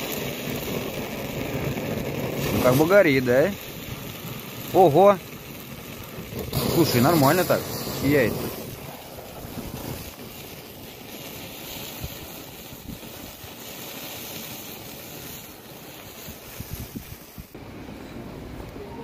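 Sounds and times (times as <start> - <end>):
wind buffeting microphone: 5.8 - 10.5, 11.8 - 13.5, 16.2 - 17.6.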